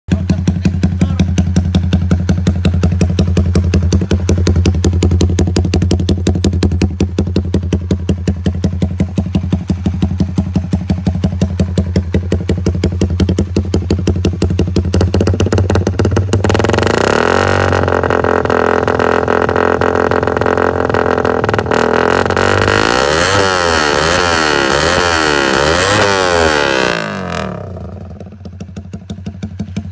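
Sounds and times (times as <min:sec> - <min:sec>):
motorcycle engine idling: 0:00.1 - 0:29.9.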